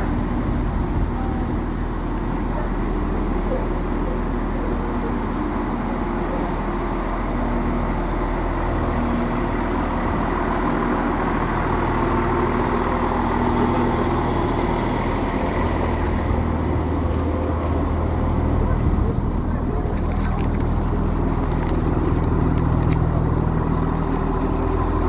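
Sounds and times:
diesel train engines idling: 0:00.0 - 0:25.0.

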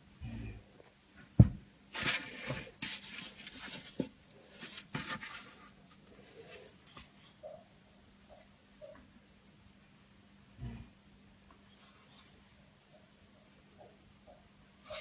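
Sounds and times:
rustling and scraping: 0:00.8 - 0:07.5.

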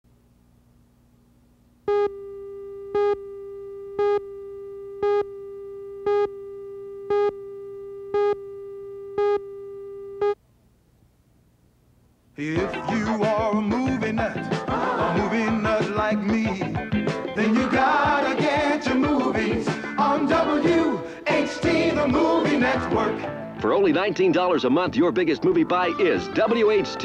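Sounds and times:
beeps: 0:01.9 - 0:10.4
music: 0:12.4 - 0:27.0.

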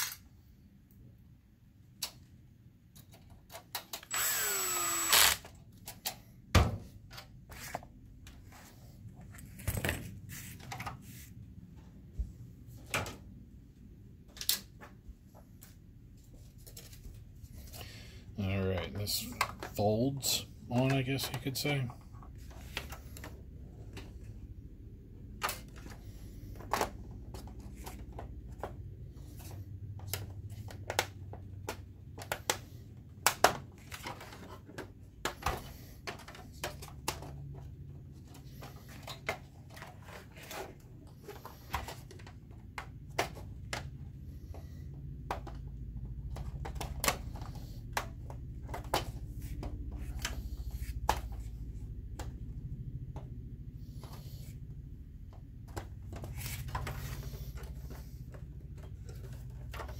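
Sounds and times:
low steady hum: 0:04.1 - 0:59.9.

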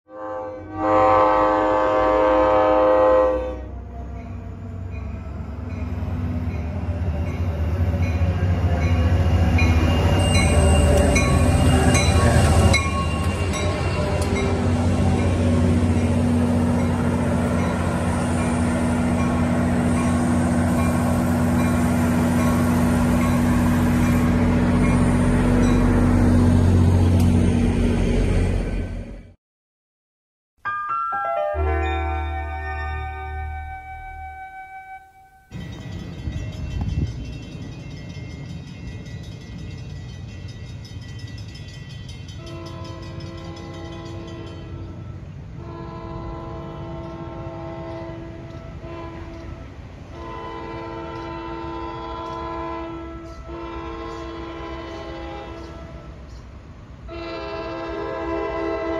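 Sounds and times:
train horn blast: 0:00.1 - 0:03.9, 0:42.4 - 0:56.3, 0:57.1 - 0:58.9
locomotive bell ringing: 0:04.1 - 0:26.0, 0:30.7 - 0:45.3.

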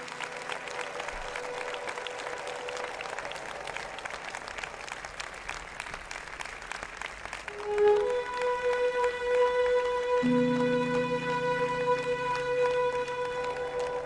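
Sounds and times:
audience applauding: 0:00.0 - 0:14.0
music with held notes: 0:07.5 - 0:14.0.

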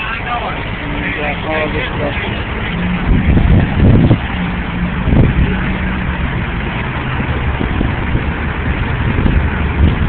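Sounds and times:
engine idling: 0:00.0 - 0:10.0
highway traffic rumble: 0:00.0 - 0:10.0.

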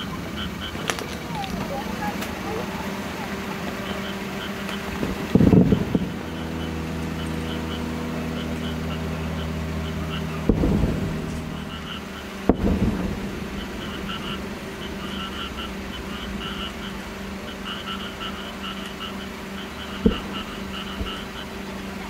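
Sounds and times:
frogs chirping: 0:00.0 - 0:22.0
distant firework booms: 0:10.4 - 0:16.4, 0:20.0 - 0:21.4.

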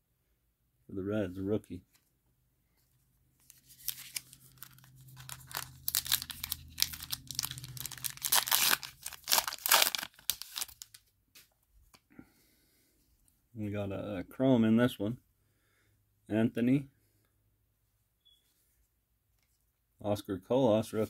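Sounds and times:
foil wrapper tearing and crinkling: 0:03.5 - 0:11.0.

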